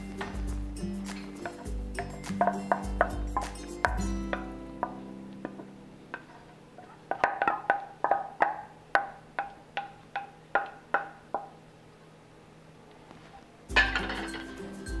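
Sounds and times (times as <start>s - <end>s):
spatula knocking on metal bowl: 1.4s - 6.3s, 7.1s - 11.5s.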